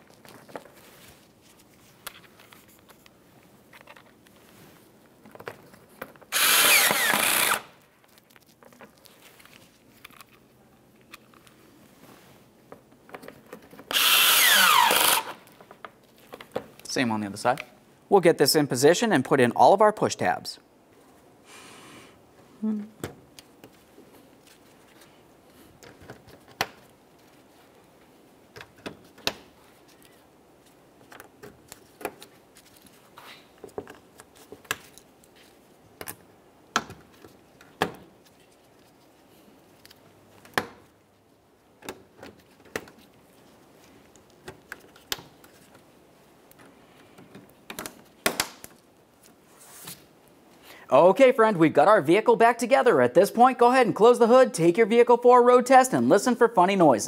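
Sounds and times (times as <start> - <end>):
plastic handling: 0.0 - 6.3, 7.9 - 13.9.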